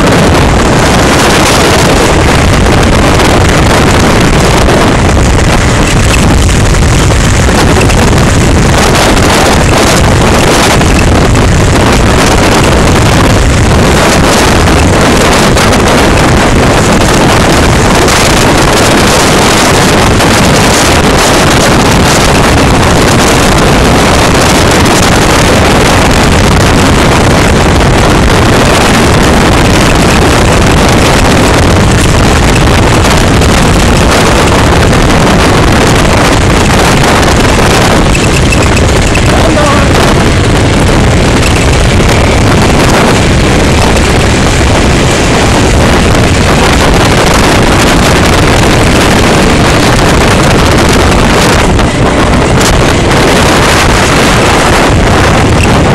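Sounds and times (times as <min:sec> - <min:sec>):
motorcycle engine running: 0:00.0 - 0:55.9
wind rush on microphone: 0:00.0 - 0:55.9.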